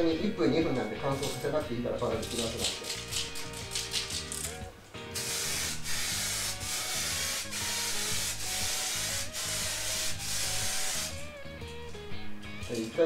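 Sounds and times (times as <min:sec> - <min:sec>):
aerosol spray can hissing: 0:05.2 - 0:11.3.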